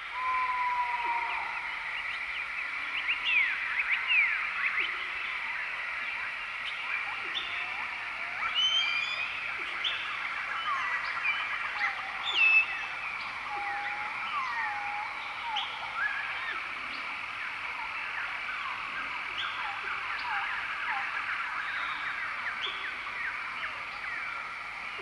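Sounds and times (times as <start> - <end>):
loud bird call: 0.0 - 2.0
birds whistling and chirping: 8.5 - 10.0.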